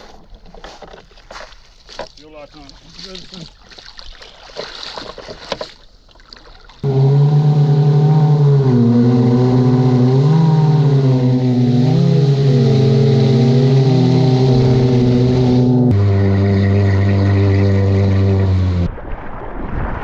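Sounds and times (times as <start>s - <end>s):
jet ski engine running: 6.8s - 18.9s.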